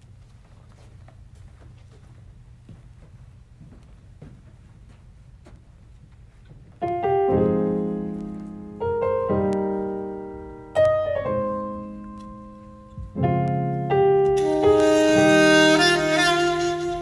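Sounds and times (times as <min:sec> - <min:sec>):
faint room noise: 0:00.0 - 0:17.0
piano chords: 0:06.8 - 0:17.0.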